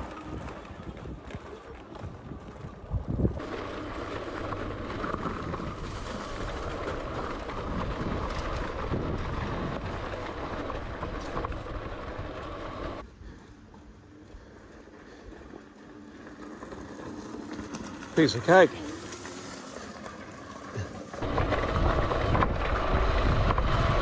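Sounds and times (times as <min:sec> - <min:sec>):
tyre and wind rumble: 0:00.0 - 0:14.3, 0:20.6 - 0:24.0
electric motor whine: 0:15.8 - 0:24.0.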